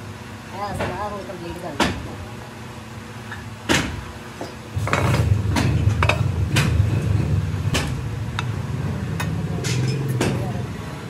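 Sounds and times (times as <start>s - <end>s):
low machinery rumble: 0.0s - 11.0s
metal clanks and knocks: 3.7s - 8.5s, 9.1s - 10.6s.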